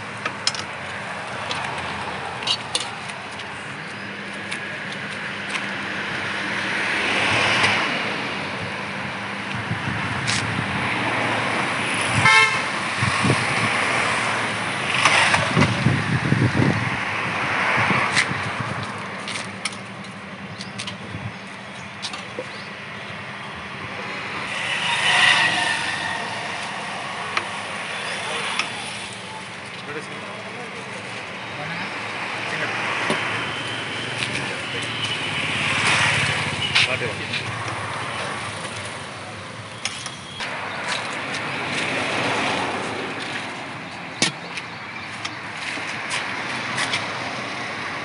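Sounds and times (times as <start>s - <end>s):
street traffic noise: 0.0s - 48.0s
vehicle passing close by: 23.8s - 29.3s.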